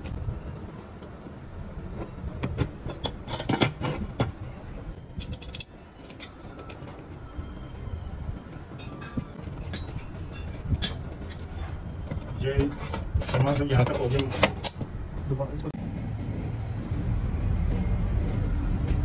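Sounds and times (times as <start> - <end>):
metal parts knocking and clinking: 5.1 - 7.1
low steady rumble: 14.8 - 19.0.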